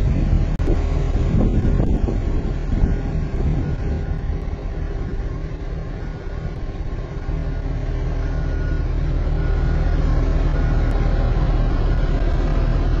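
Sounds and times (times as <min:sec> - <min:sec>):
transporter engine droning: 0:00.0 - 0:13.0.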